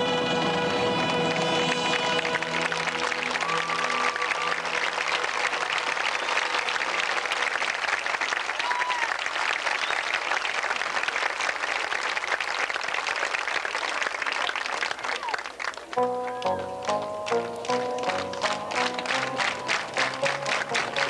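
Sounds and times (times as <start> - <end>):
marching band chord: 0.0 - 6.0, 16.0 - 21.0
crowd applauding: 0.0 - 21.0.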